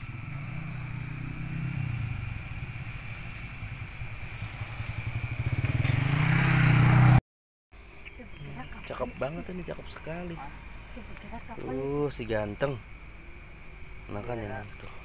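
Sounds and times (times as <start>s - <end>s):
vehicle engine running: 0.0s - 7.2s.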